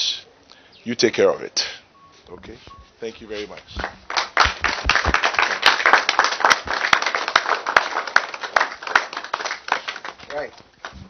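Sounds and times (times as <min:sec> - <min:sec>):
dull thumps: 0:03.6 - 0:05.3
people clapping: 0:03.7 - 0:11.0.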